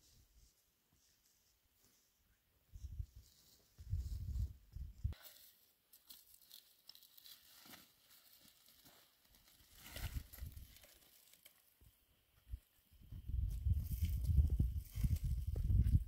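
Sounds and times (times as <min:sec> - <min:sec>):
faint rustling and crinkling: 0:02.8 - 0:16.0.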